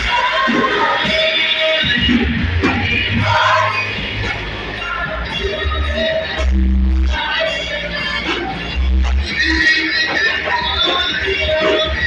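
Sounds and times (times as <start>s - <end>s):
band playing worship music: 0.0s - 12.0s
voices singing: 0.0s - 12.0s
strong low bass: 1.8s - 9.7s.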